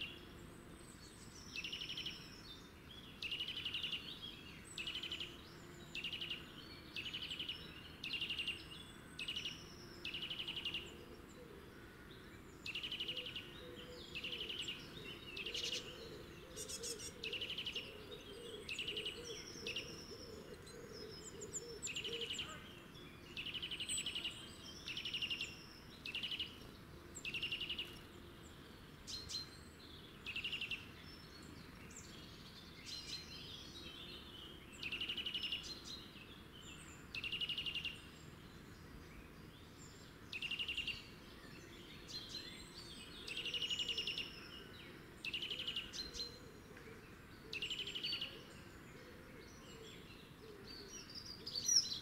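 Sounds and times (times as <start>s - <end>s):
small songbirds singing: 0.0s - 52.0s.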